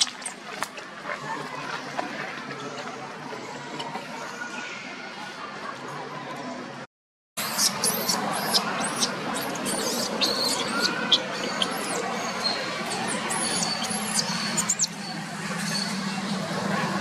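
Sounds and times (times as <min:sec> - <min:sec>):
baby monkey squealing: 0:07.5 - 0:15.0.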